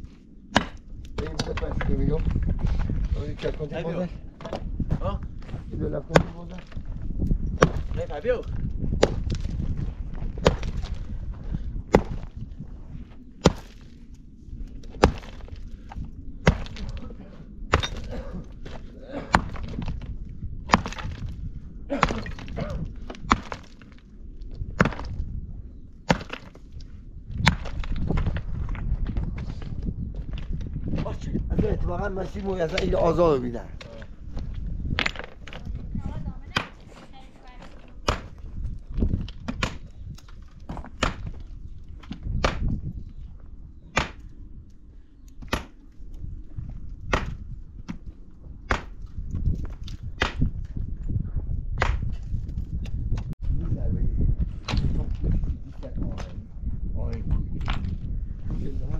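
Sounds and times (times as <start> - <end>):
low rumble: 0.0 - 36.6
hard tool striking stone: 0.5 - 1.6, 6.1 - 6.7, 7.6 - 8.0, 11.9 - 12.3, 13.4 - 13.8, 15.0 - 15.4, 16.4 - 17.0, 17.7 - 20.0, 20.7 - 23.9, 26.1 - 26.6, 40.7 - 41.4, 43.9 - 44.2, 48.7 - 49.1
sharp knocks of hard objects: 0.5 - 1.9, 6.1 - 6.7, 7.6 - 8.0, 26.1 - 26.6, 36.5 - 37.0, 38.0 - 38.4, 39.4 - 39.9, 40.7 - 41.4, 42.0 - 42.8, 43.9 - 44.3, 45.4 - 45.8, 47.1 - 48.0, 48.7 - 49.1, 49.8 - 50.5, 51.8 - 52.2.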